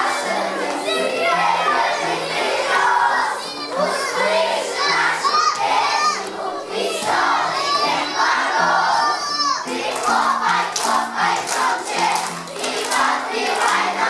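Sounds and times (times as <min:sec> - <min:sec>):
children chattering and shouting: 0:00.0 - 0:14.0
children squealing: 0:08.9 - 0:09.7.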